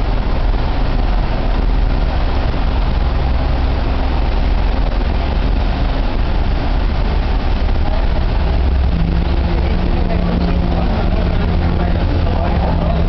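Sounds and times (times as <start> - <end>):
even wash of noise: 0.0 - 13.0
loud low rumble: 0.0 - 13.0.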